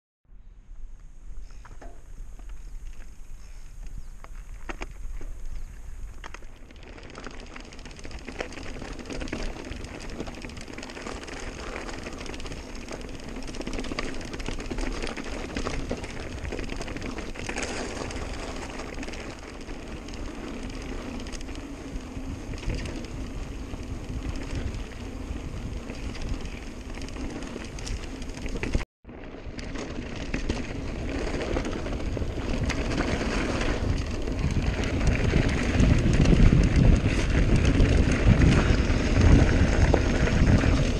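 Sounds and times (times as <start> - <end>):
tyre noise on dirt: 1.3 - 40.9
bike rattling and clicking: 1.5 - 40.9
wind on microphone: 8.7 - 28.8, 30.6 - 40.9.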